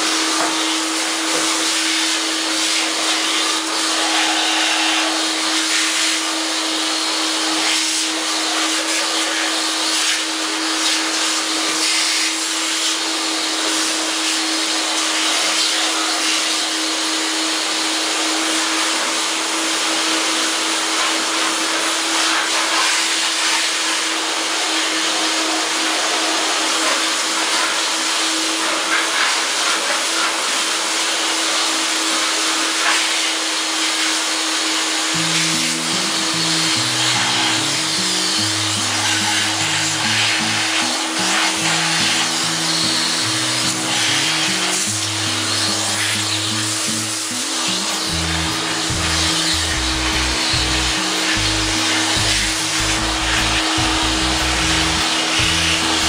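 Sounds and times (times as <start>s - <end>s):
lathe electric motor running: 0.0s - 56.0s.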